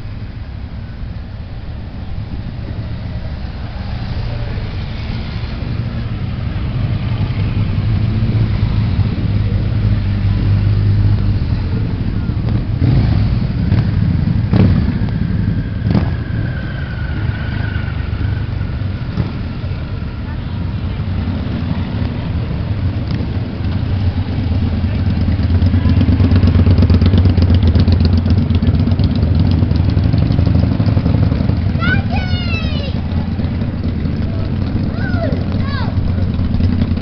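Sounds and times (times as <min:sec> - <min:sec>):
motorcycles riding slowly past: 0:00.0 - 0:37.0.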